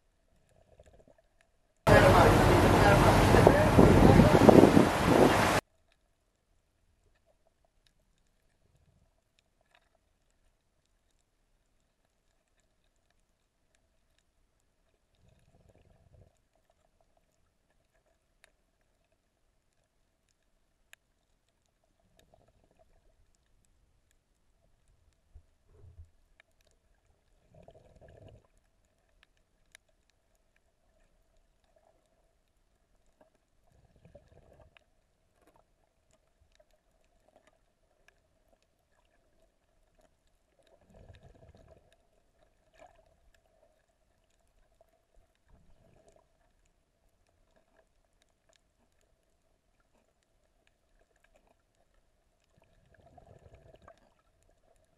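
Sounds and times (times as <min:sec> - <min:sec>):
faint underwater hum: 0:00.0 - 0:54.9
underwater water whooshes: 0:01.9 - 0:05.6
faint clicks: 0:17.2 - 0:27.0.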